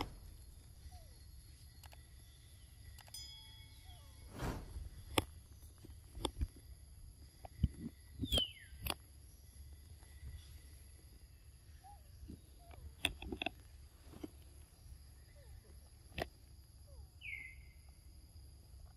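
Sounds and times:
falling whistled calls: 0:17.2 - 0:17.8.

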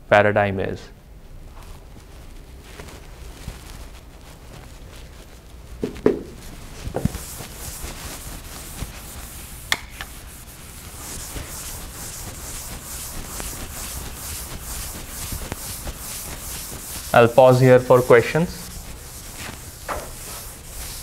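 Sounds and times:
eraser scrubbing blackboard: 0:05.8 - 0:21.0.

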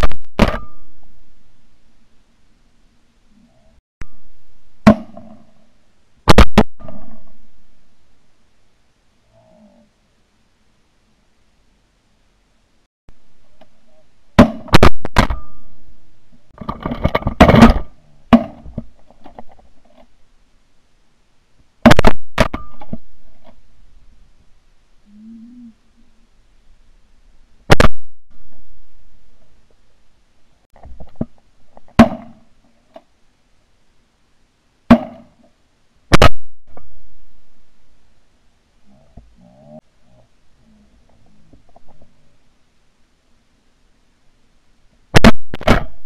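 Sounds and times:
shotgun shots: 0:06.3 - 0:07.0, 0:21.8 - 0:22.7, 0:36.1 - 0:36.4.

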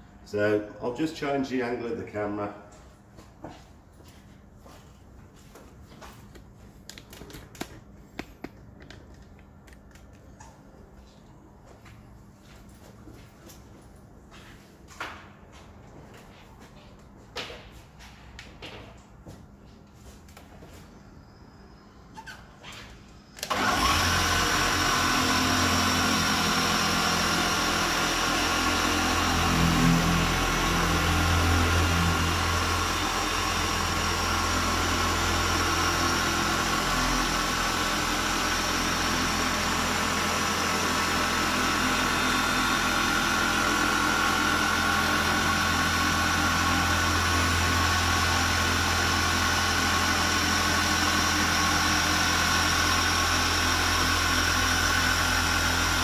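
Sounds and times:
orbital polisher humming with whine: 0:23.4 - 0:56.0.

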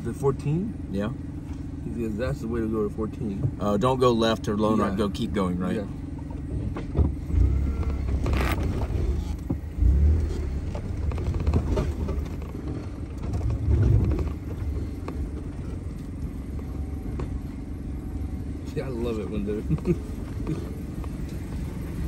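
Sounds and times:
off-road vehicle engine running: 0:00.0 - 0:22.0
heavy low rumbles: 0:05.8 - 0:22.0.

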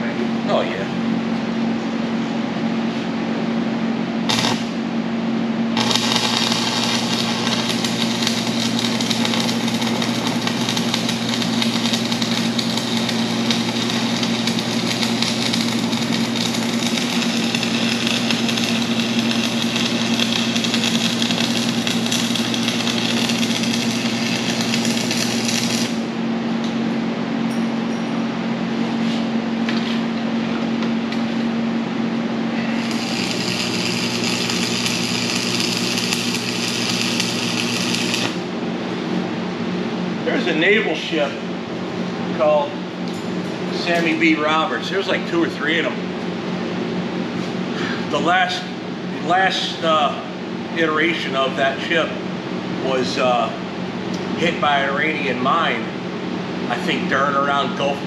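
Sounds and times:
steady low hum: 0:00.0 - 0:58.0
welding arc crackling: 0:04.3 - 0:04.8, 0:05.8 - 0:26.2, 0:32.7 - 0:38.6.

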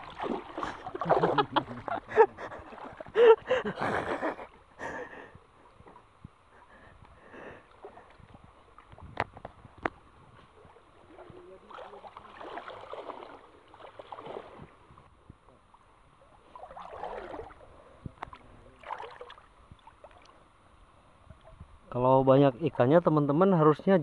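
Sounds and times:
water splashing as people wade: 0:00.0 - 0:06.1, 0:07.1 - 0:15.0, 0:15.7 - 0:20.5.

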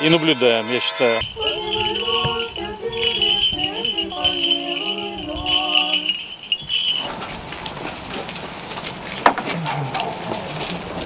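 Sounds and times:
voices chanting slow melody: 0:01.2 - 0:07.0
small bells jingling: 0:01.2 - 0:07.6.

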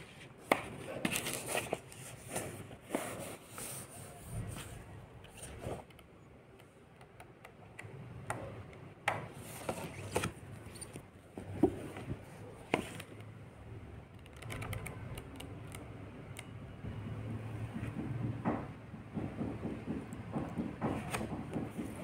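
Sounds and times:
paper pages rustling: 0:00.0 - 0:05.8.

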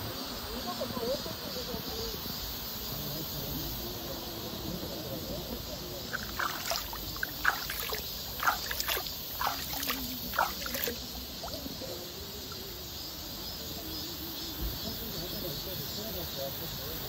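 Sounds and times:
stream water trickling: 0:05.9 - 0:13.0
small water splashes: 0:06.0 - 0:12.7.

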